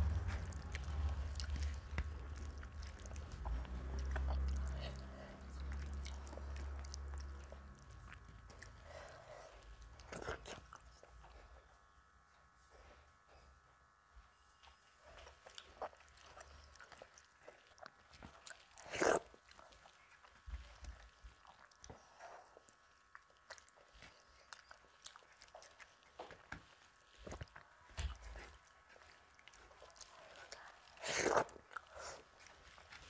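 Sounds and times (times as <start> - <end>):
fingers squishing food on plate: 0.0 - 8.8
wet chewing: 0.0 - 11.6, 15.0 - 33.0.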